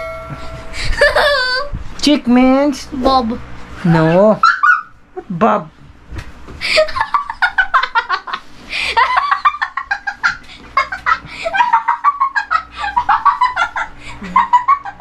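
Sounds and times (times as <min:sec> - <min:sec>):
people laughing: 0:00.8 - 0:01.7, 0:06.6 - 0:15.0.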